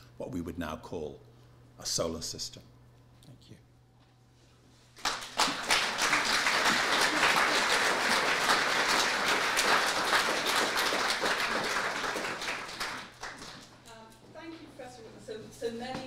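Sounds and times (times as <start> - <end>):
audience applauding: 5.0 - 13.8.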